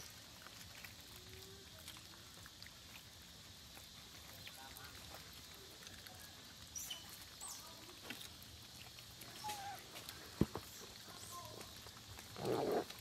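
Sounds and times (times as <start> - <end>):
macaques squeaking and chirping: 6.6 - 7.9, 9.2 - 11.8
monkey call: 9.3 - 10.2.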